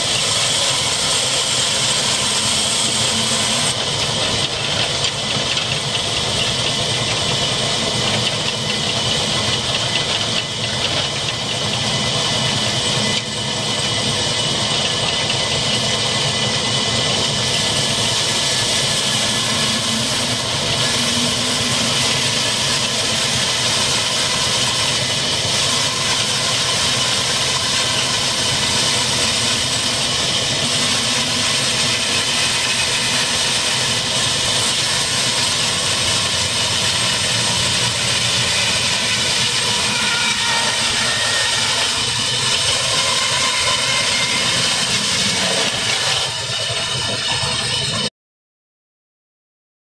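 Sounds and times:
diesel engine running: 0.0s - 39.8s
band saw cutting wood: 0.0s - 48.1s.

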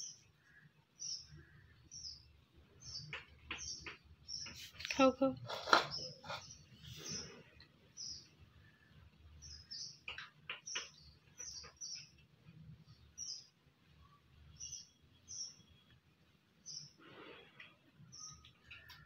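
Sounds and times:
small bird chirping: 0.0s - 16.0s, 16.6s - 17.0s, 17.7s - 19.0s.

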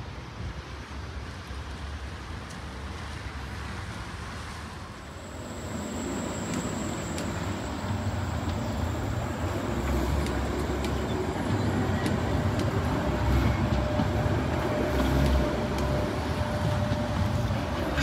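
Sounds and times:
tram rumbling: 0.0s - 18.0s
faint steady whine: 4.8s - 9.6s.

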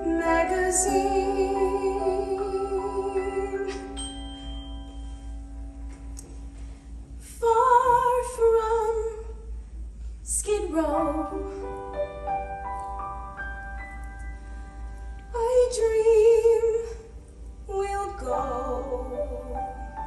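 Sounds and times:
woman singing with vibrato: 0.0s - 4.0s, 17.7s - 20.0s
keyboard playing: 0.0s - 6.8s.

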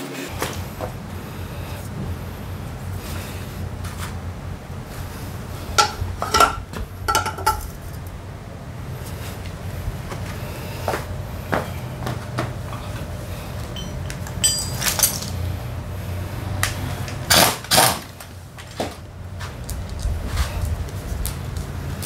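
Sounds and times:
steady low hum: 0.0s - 22.0s
metal tools clinking: 5.8s - 7.9s, 13.7s - 15.4s.

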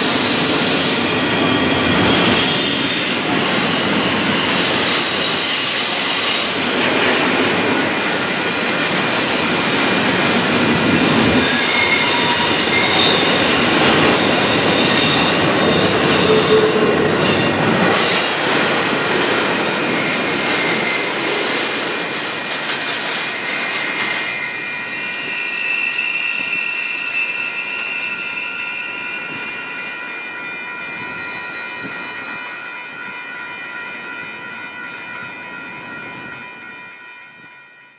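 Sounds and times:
steel wheels squealing: 0.0s - 18.7s, 19.8s - 21.6s, 22.4s - 30.0s
train rolling rumble: 0.0s - 26.6s.

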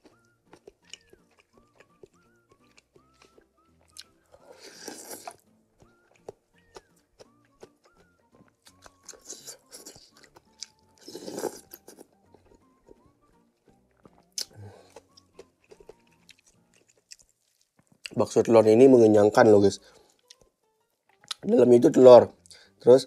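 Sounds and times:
wet chewing: 0.0s - 13.0s, 13.9s - 18.2s
soft background music: 0.0s - 23.0s
noodle slurping: 4.5s - 5.4s, 11.0s - 11.8s.

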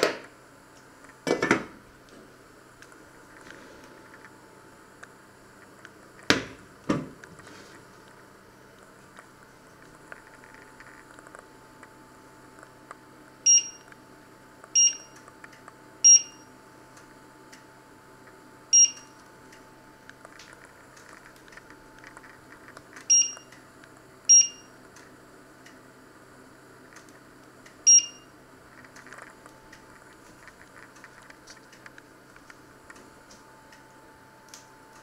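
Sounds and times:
short high beeps: 13.5s - 13.8s, 14.8s - 15.1s, 16.0s - 16.4s, 18.8s - 19.0s, 23.1s - 23.5s, 24.3s - 24.7s, 27.9s - 28.2s.

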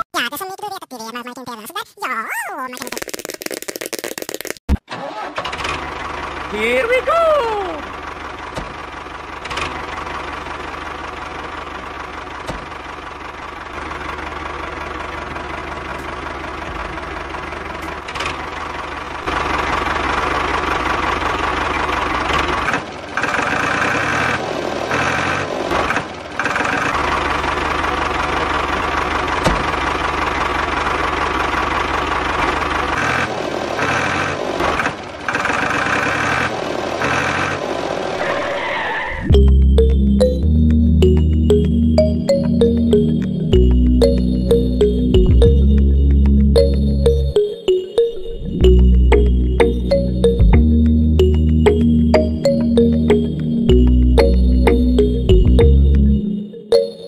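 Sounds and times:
tractor engine knocking: 7.8s - 37.5s.

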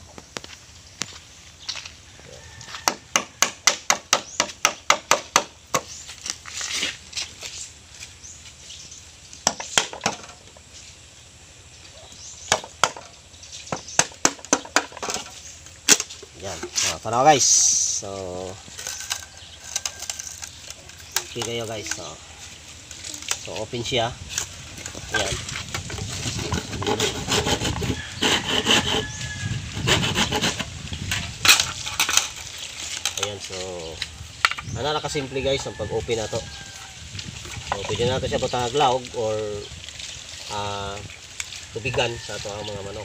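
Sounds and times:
hammer striking chisel in bamboo: 2.8s - 5.9s, 9.4s - 10.4s, 12.5s - 15.3s
handsaw cutting bamboo: 25.1s - 31.8s.

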